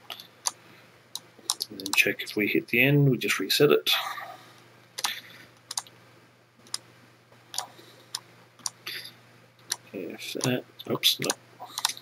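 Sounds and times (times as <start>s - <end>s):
computer mouse and keyboard clicks: 0.1s - 2.1s, 5.0s - 5.9s, 6.6s - 6.8s, 7.5s - 8.8s, 9.6s - 10.6s, 11.2s - 12.0s.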